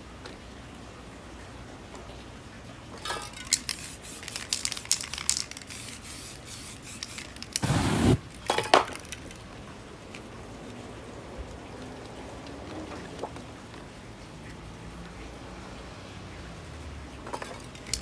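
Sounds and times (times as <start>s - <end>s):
quick clicks and crackles: 3.2s - 6.1s, 6.8s - 9.5s, 17.3s - 18.0s
spray paint can spraying: 3.4s - 8.2s.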